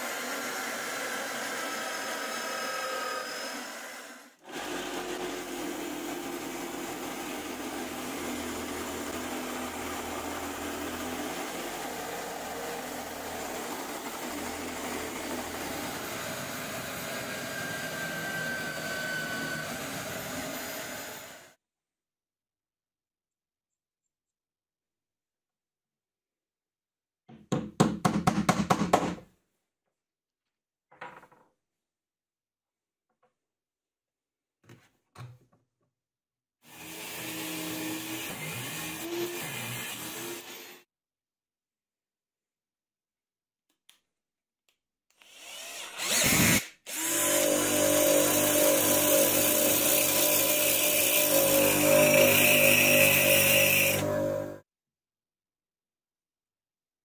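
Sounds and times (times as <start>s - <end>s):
motor spinning up: 47.6s - 54.6s.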